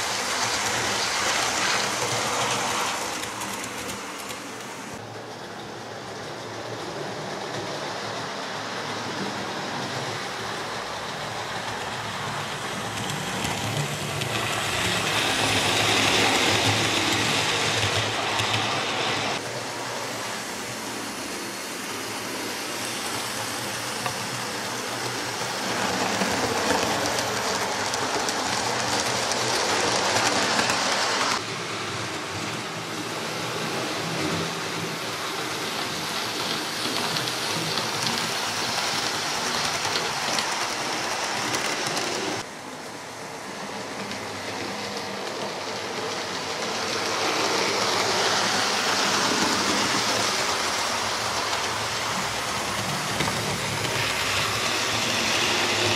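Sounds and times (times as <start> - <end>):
model train motor whirring: 12.8 - 19.4.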